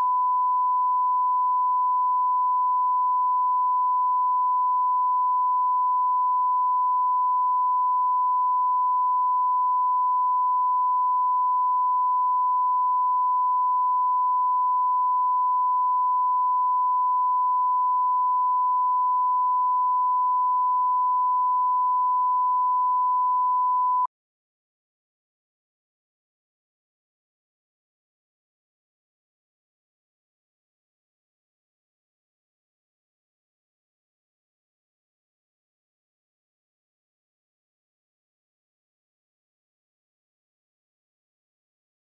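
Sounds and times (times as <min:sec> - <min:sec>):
steady test tone beep: 0:00.0 - 0:24.1.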